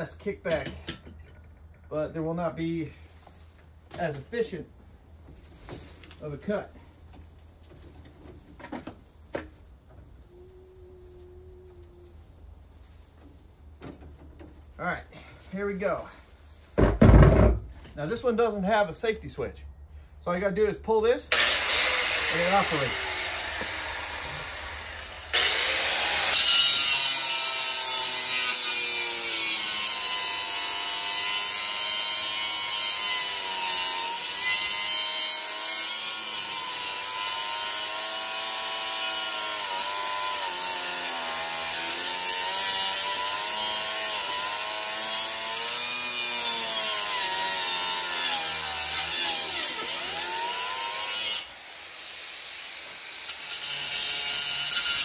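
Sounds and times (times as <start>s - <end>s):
angle grinder cutting metal: 21.3s - 55.0s.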